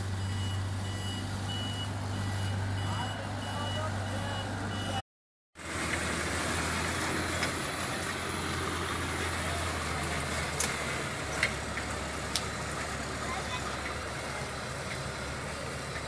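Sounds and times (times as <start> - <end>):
diesel engine droning: 0.0 - 5.0, 5.6 - 16.0
reversing beeper: 0.0 - 5.0.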